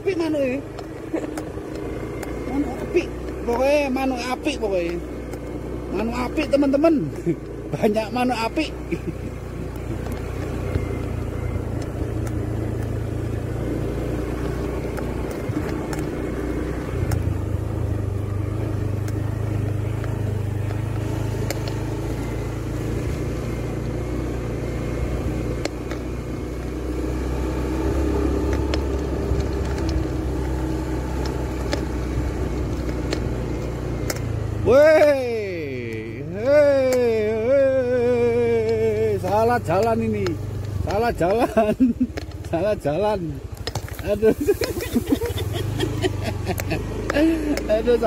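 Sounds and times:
scooter engine running: 0.0 - 48.0.

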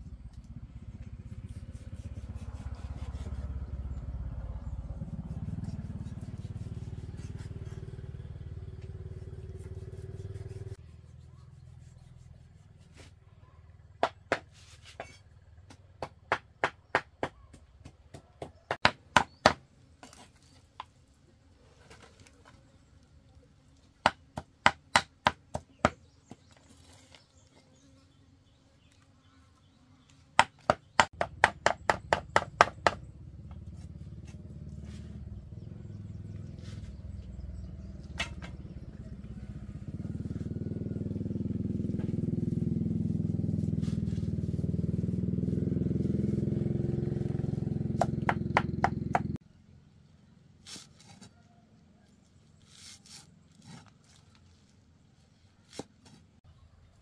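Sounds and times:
low engine rumble: 0.0 - 13.9, 32.6 - 50.5
knife chopping on a board: 14.0 - 19.6, 24.0 - 26.5.

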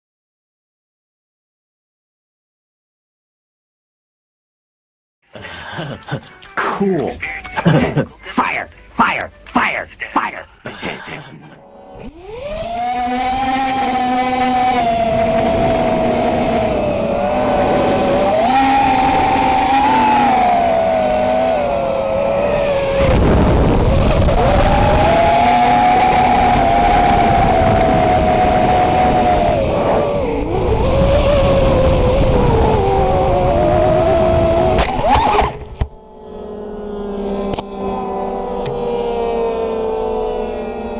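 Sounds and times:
drone propellers whining: 11.4 - 40.9.

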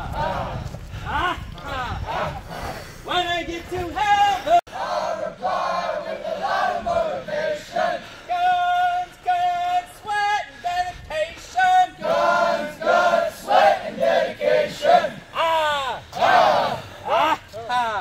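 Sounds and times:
group singing in response: 4.7 - 9.8.

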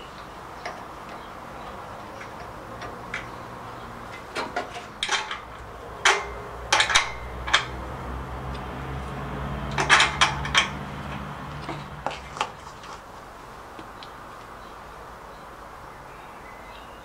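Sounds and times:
metal tools clinking: 0.6 - 7.8, 9.6 - 12.9.

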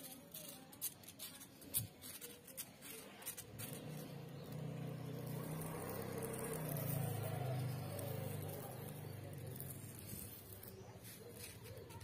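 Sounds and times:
vehicle engine running: 3.2 - 11.8.

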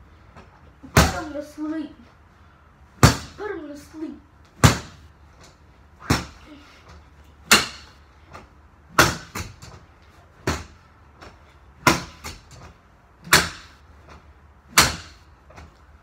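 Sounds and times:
pole whacking punching ball: 0.8 - 1.4, 3.0 - 3.4, 4.6 - 6.4, 7.4 - 9.8, 10.4 - 15.7.

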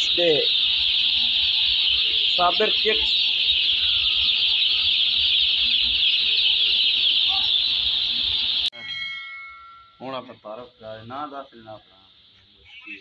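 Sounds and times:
chicks peeping: 0.0 - 8.7.

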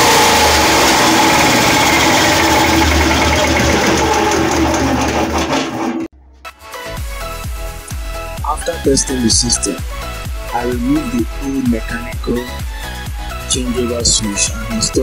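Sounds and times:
small generator engine running: 0.0 - 6.1.

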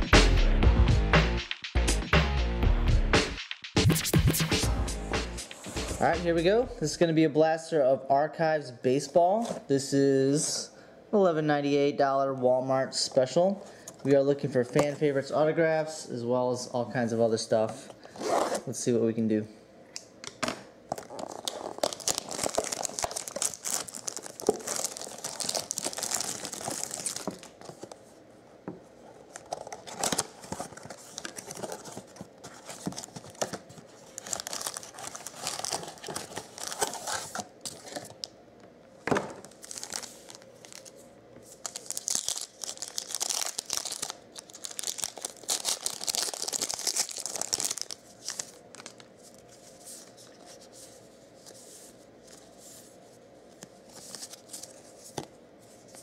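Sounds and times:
plastic wrap crinkling and tearing: 20.9 - 28.0, 29.2 - 38.3, 39.4 - 50.6
cardboard flaps tearing: 29.5 - 38.1.

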